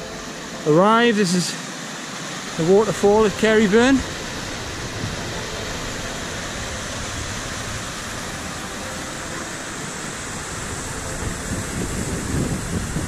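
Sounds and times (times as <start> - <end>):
waterfall rushing over rocks: 0.0 - 13.0.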